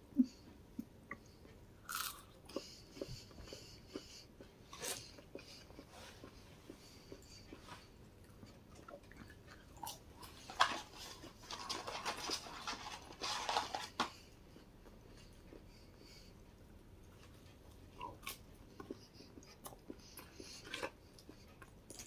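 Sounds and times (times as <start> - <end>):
soft chewing: 0.0 - 22.0
paper carton crinkling: 10.5 - 14.1.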